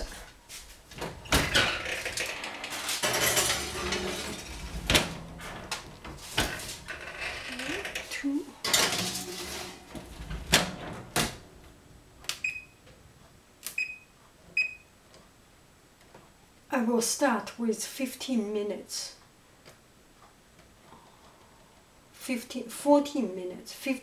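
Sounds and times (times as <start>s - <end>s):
metal pan clattering: 8.6s - 9.9s.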